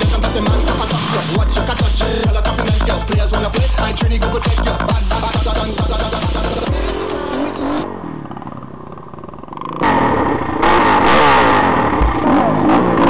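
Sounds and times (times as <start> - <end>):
background music: 0.0 - 7.8
motorcycle engine revving: 0.0 - 13.0.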